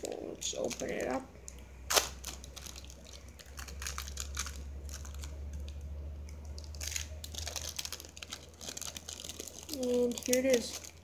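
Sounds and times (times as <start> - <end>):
plastic wrapper crinkling: 0.0 - 11.0.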